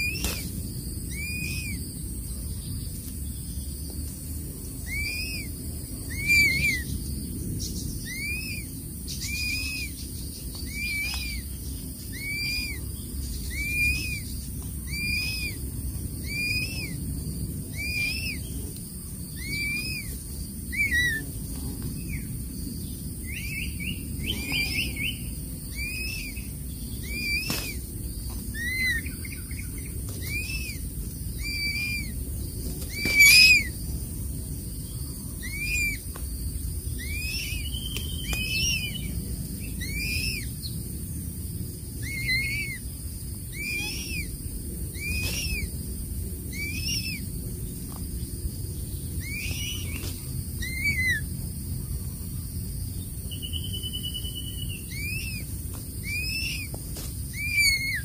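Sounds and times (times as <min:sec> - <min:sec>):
bird whistled calls: 0:00.0 - 0:00.5, 0:01.1 - 0:01.8, 0:04.8 - 0:07.0, 0:07.9 - 0:17.0, 0:17.7 - 0:18.6, 0:19.3 - 0:21.3, 0:23.2 - 0:27.9, 0:28.5 - 0:32.2, 0:32.9 - 0:33.8, 0:35.4 - 0:36.0, 0:37.0 - 0:40.6, 0:42.0 - 0:42.8, 0:43.5 - 0:44.4, 0:45.0 - 0:45.7, 0:46.5 - 0:47.3, 0:49.2 - 0:51.3, 0:53.3 - 0:58.0
sharp bird sound: 0:00.0 - 0:01.9, 0:04.8 - 0:17.1, 0:17.7 - 0:18.7, 0:19.3 - 0:21.3, 0:22.0 - 0:32.2, 0:32.8 - 0:33.8, 0:36.9 - 0:40.7, 0:43.5 - 0:44.4, 0:45.0 - 0:45.7, 0:49.1 - 0:51.3, 0:53.3 - 0:56.8.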